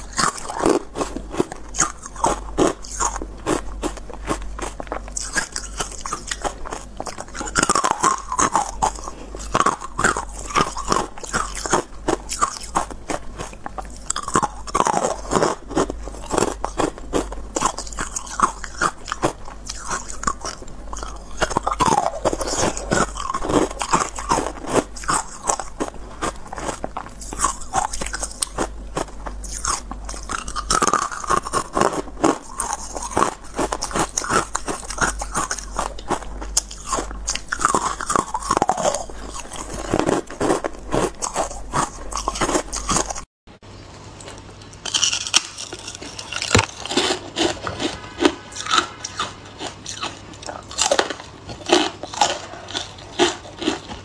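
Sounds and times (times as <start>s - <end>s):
chewing crunchy ice: 0.0s - 43.3s, 44.2s - 54.0s.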